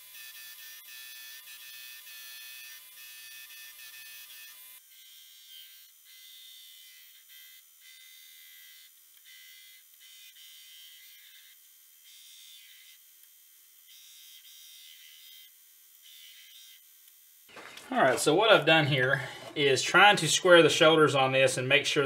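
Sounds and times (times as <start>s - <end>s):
belt grinder grinding steel: 17.5s - 21.0s.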